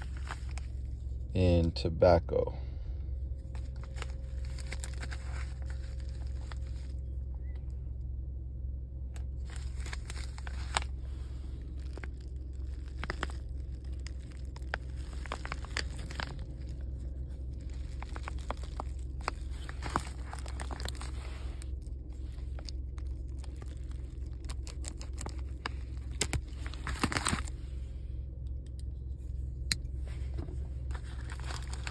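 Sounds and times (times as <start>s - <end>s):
plastic wrapping crinkling: 0.0s - 1.2s, 3.3s - 7.2s, 9.2s - 27.6s, 30.8s - 31.9s
steady low hum: 0.0s - 31.9s.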